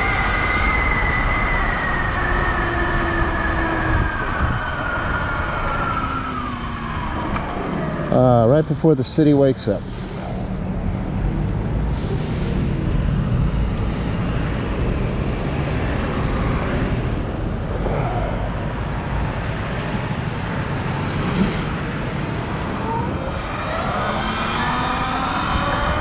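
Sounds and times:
wind on microphone: 0:00.0 - 0:08.0, 0:18.5 - 0:26.0.

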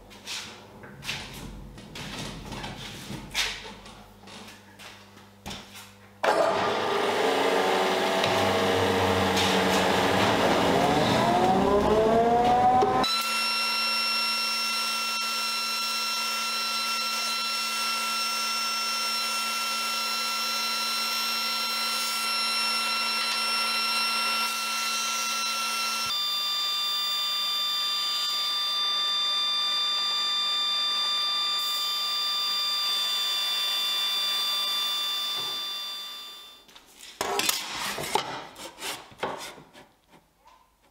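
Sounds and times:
drum sander motor whining: 0:06.5 - 0:36.4.

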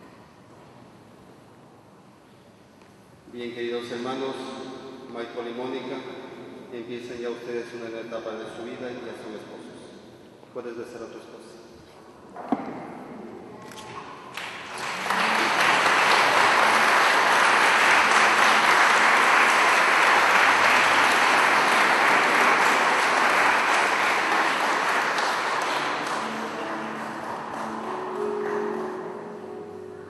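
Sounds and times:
crowd applauding: 0:14.3 - 0:29.3.

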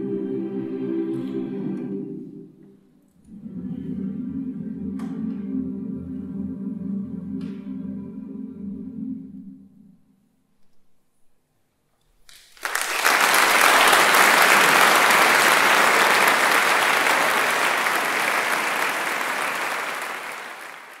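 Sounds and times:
audience applauding: 0:12.3 - 0:21.0.

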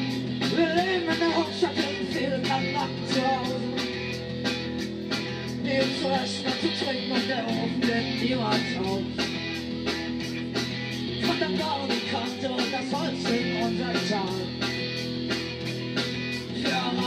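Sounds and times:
person singing: 0:00.0 - 0:04.1, 0:05.2 - 0:09.4, 0:11.1 - 0:14.8, 0:16.3 - 0:17.0
bass guitar: 0:00.0 - 0:17.0
drums keeping a beat: 0:00.0 - 0:17.0
electric guitar: 0:00.0 - 0:17.0.

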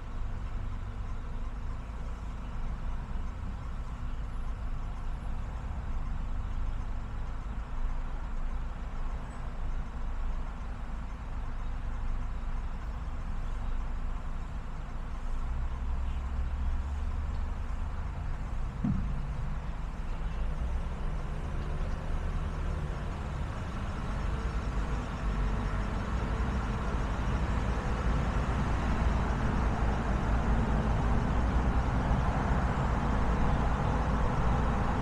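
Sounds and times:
car engine and tyre rumble: 0:00.0 - 0:35.0
short knock: 0:18.8 - 0:19.4.

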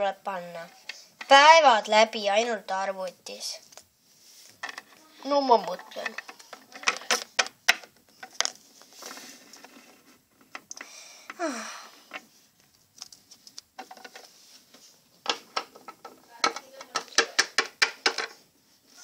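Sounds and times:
plastic toy figures clicking: 0:04.6 - 0:08.6, 0:15.3 - 0:18.3.

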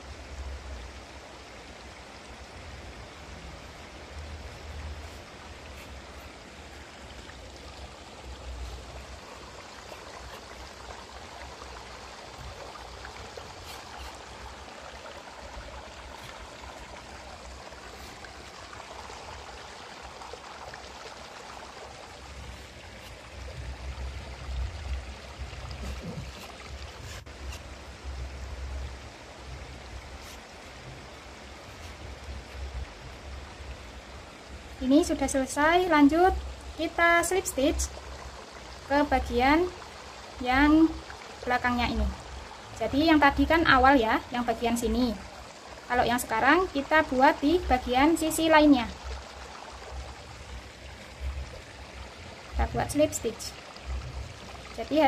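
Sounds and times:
crochet hook rustling yarn: 0:05.0 - 0:06.4, 0:13.6 - 0:14.4, 0:25.8 - 0:27.7.

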